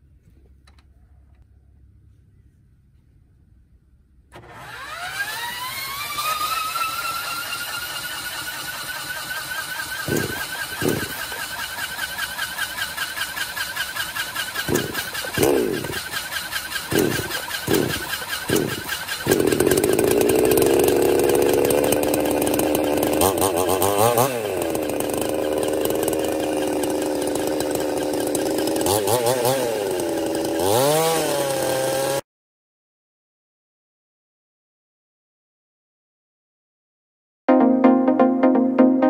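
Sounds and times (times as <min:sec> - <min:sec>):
chainsaw cutting wood: 0:04.4 - 0:32.2.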